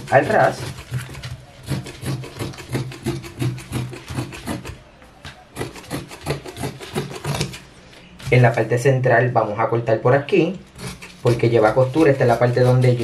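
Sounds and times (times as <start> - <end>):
shears snipping through cloth: 0.0 - 4.7, 5.6 - 7.6.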